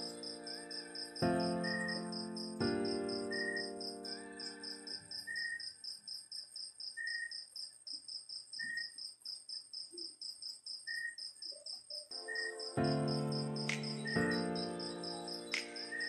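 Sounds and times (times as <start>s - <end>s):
electronic keyboard music: 0.0s - 5.1s, 12.1s - 16.0s
crickets chirping: 0.0s - 16.0s.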